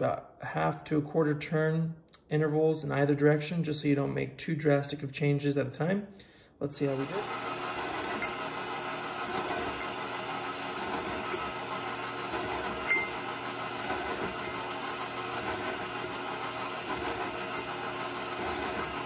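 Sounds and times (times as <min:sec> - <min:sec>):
stand mixer motor running: 0:06.9 - 0:19.0.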